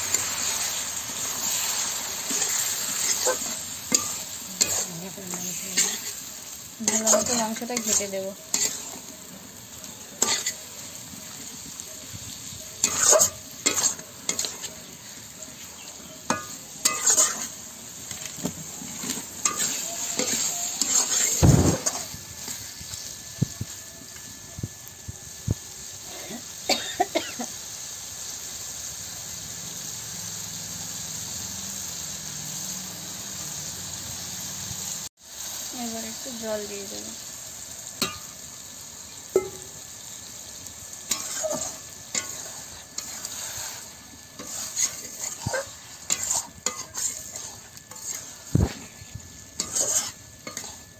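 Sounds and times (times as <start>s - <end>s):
spatula scraping a pan: 0.0s - 9.1s, 10.2s - 11.4s, 12.8s - 22.2s, 41.0s - 50.9s
chicken sizzling in oil: 0.0s - 50.9s.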